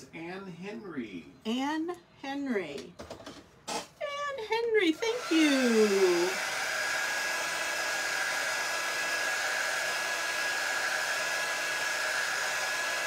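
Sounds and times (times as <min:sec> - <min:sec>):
heat tool blowing with whine: 0:05.2 - 0:13.0.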